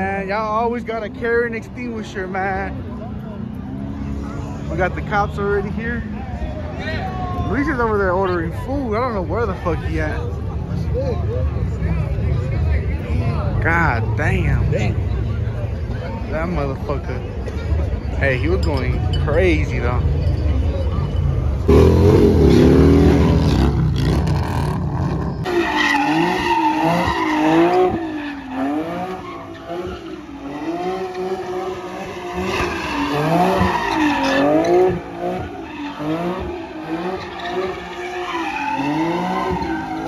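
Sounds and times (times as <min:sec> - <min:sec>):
tyres squealing and skidding: 0:00.0 - 0:40.0
car engine revving: 0:19.0 - 0:40.0.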